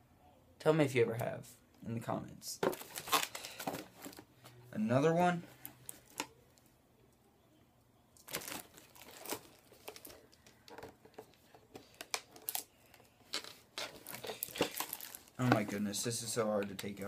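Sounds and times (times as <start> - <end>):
cardboard packaging rustling: 2.6 - 4.5, 8.2 - 16.2.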